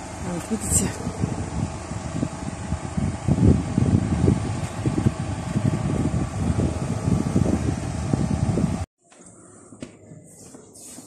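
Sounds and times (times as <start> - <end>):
wind buffeting microphone: 0.0 - 8.9.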